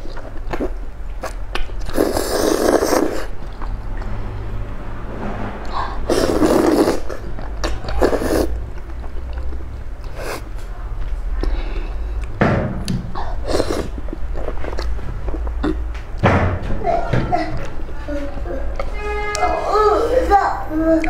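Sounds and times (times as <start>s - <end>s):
wet chewing and mouth clicks: 0.0s - 4.2s, 6.4s - 16.2s
person slurping noodles: 1.8s - 3.4s, 5.7s - 7.4s, 8.0s - 8.6s, 13.2s - 15.8s
low hum: 3.3s - 7.8s.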